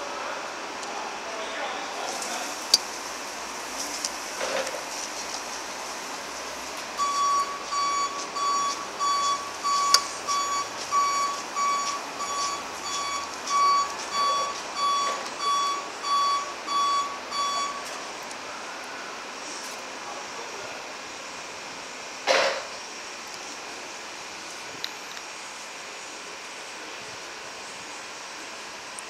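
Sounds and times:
forklift reversing alarm beeping: 7.0 - 18.1.

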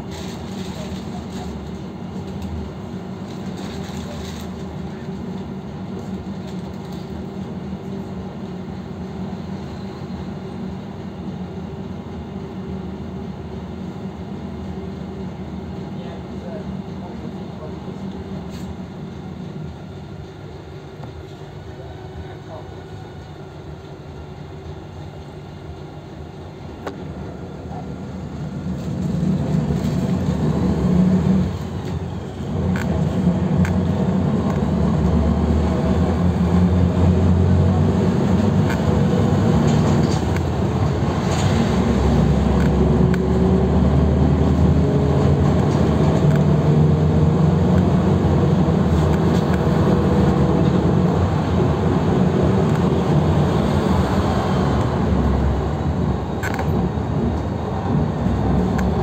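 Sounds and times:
bus diesel engine revving: 28.6 - 59.0.

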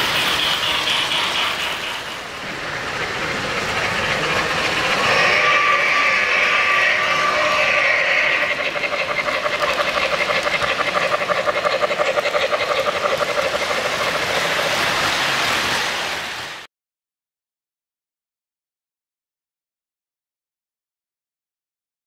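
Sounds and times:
model train wheels clicking: 0.0 - 15.8
steady high-pitched sound: 0.0 - 16.2.

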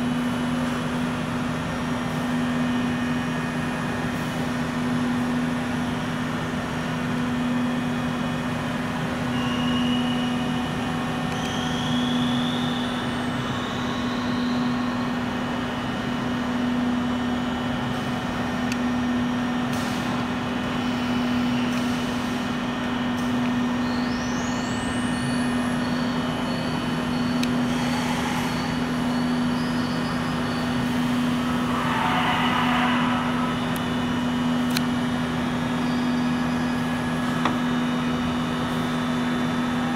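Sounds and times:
low mechanical hum: 0.0 - 39.9
high whistling tones: 28.6 - 34.6.

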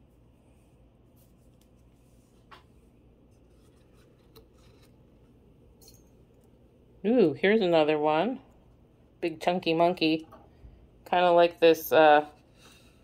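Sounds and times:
soft rubbing: 0.0 - 5.4.

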